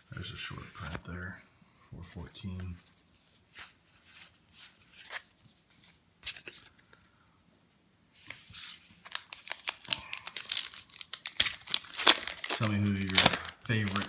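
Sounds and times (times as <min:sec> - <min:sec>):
cards flipped by hand: 0:03.6 - 0:06.9, 0:08.2 - 0:14.0
card pack wrapper crinkling: 0:08.6 - 0:14.0.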